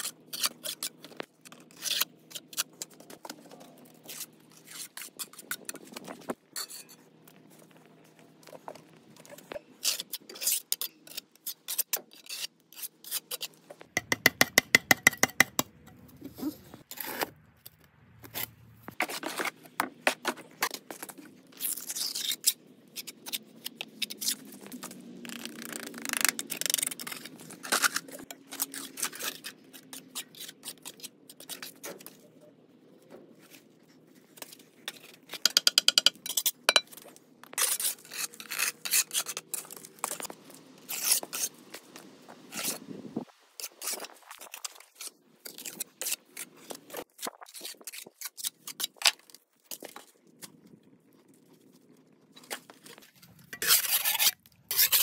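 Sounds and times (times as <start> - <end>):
trowel scraping wet mortar: 37.6 - 42.8, 52.9 - 55.0.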